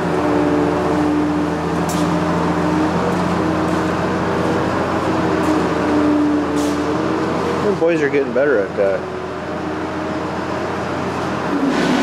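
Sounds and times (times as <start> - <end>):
diesel engine running steadily: 0.0 - 12.0.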